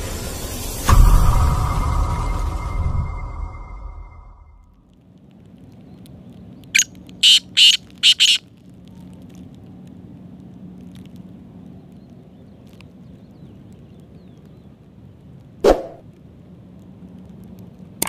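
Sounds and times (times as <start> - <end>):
bird rasping call: 6.8 - 8.4.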